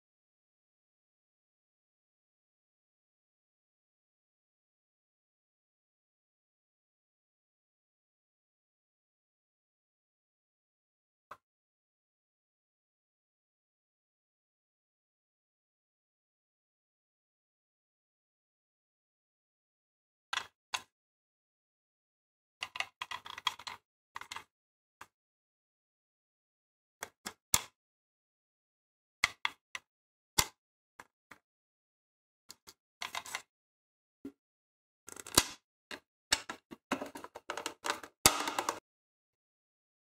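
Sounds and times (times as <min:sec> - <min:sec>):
plastic parts clicking: 0:35.1 - 0:38.8.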